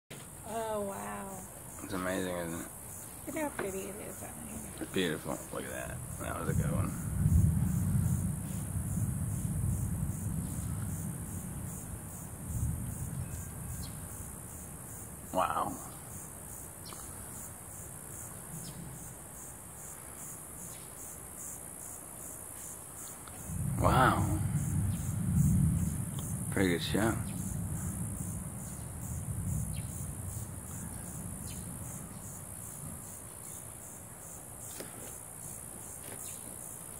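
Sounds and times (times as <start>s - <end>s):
insects trilling: 0.1s - 36.9s
low rumble: 6.0s - 13.4s, 23.4s - 32.3s.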